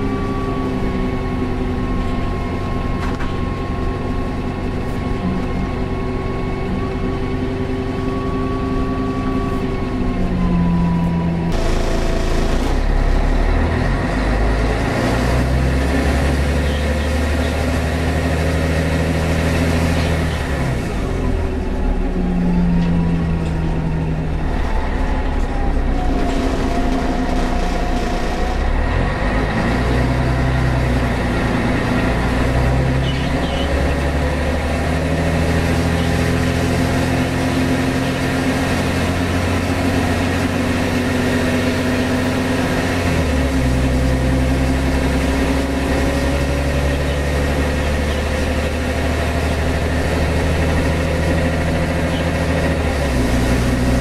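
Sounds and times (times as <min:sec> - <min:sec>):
bus engine shifting gears: 0:00.0 - 0:54.0
steady whine: 0:09.5 - 0:13.7.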